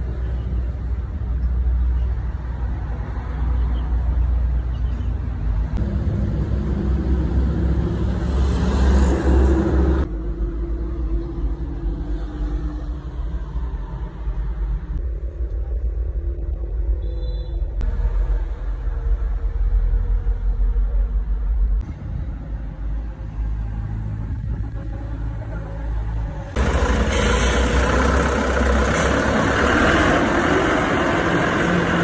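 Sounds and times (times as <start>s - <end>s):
wheel loader diesel engine rumble: 23.8s - 32.0s.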